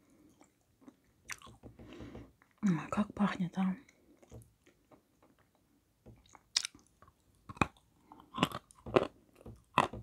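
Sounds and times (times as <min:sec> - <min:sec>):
chewing: 0:00.1 - 0:01.6, 0:03.8 - 0:10.0.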